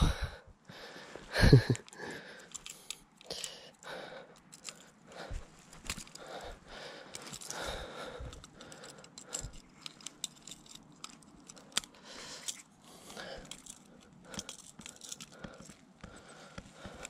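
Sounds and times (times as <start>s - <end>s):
metal forceps clicking and rattling: 1.8s - 5.0s, 5.8s - 17.0s.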